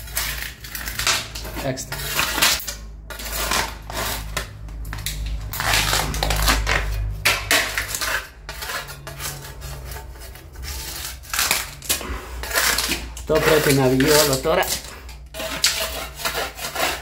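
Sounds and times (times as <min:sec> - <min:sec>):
putty knife scraping wall: 0:00.0 - 0:17.0.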